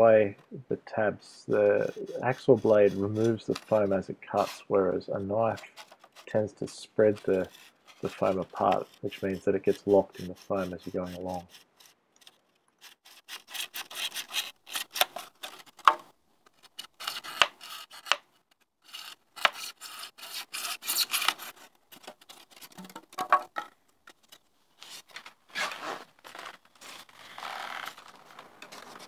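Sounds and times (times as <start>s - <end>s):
hacksaw sawing through foam: 12.8s - 15.3s, 16.9s - 18.2s, 18.8s - 21.6s.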